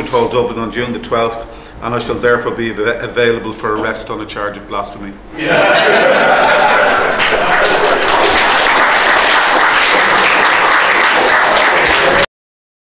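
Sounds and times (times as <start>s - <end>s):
audience applauding: 5.6s - 12.3s.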